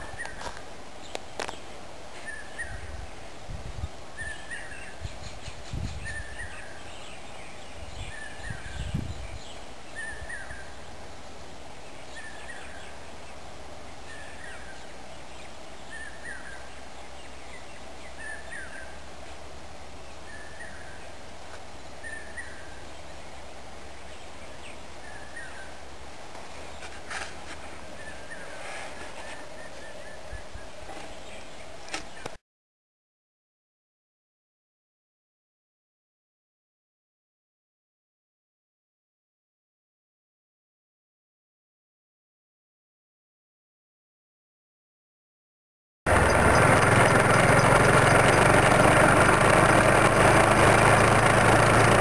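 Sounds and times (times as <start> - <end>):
outdoor background noise: 0.0 - 32.4, 46.1 - 52.0.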